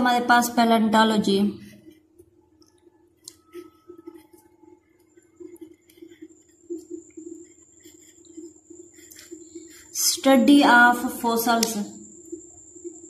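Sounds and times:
marker pen squeaking on paper: 1.6 - 10.4.

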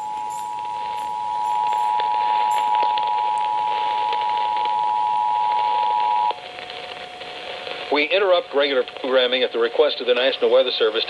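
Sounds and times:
two-tone alert signal: 0.0 - 6.3
radio static hiss and crackles: 0.0 - 11.0.

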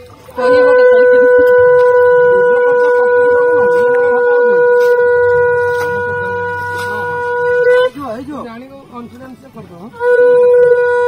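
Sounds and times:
conch shell blown in a long note: 0.0 - 8.5, 9.9 - 11.0.

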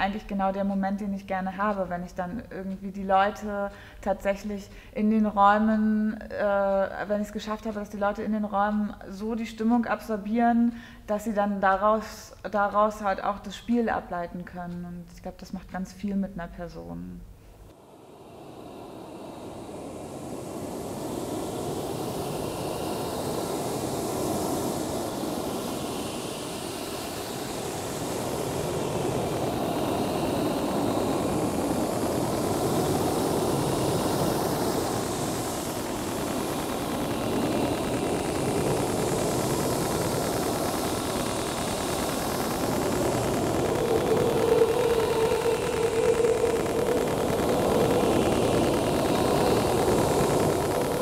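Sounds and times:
electronic drone music: 18.1 - 51.0.

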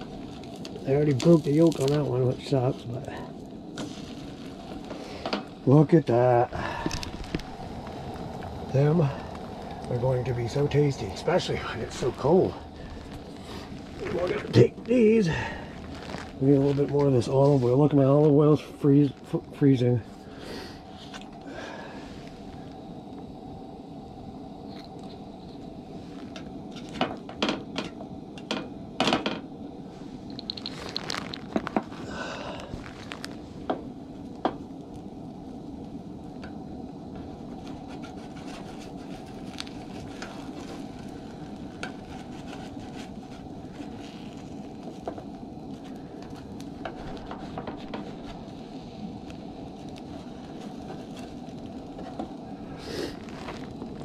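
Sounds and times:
eggs sizzling in oil: 0.0 - 18.2
gas burner hiss: 0.0 - 54.0.

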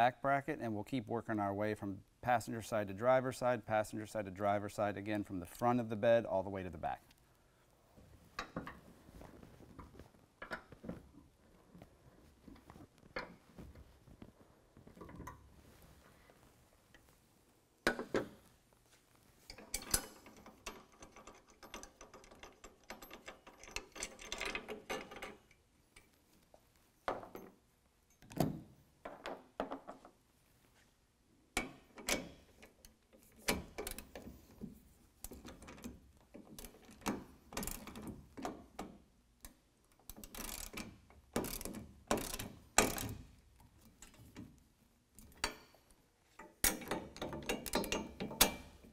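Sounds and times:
hand ratchet clicking: 39.4 - 43.2
tools clinking on steel: 45.2 - 45.8, 46.4 - 48.8.

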